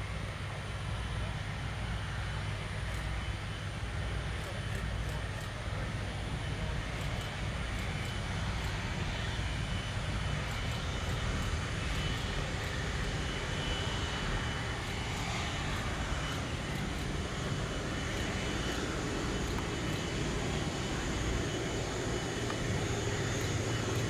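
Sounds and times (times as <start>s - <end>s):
high engine whine: 0.0s - 24.0s
jet engine rumble: 0.0s - 24.0s.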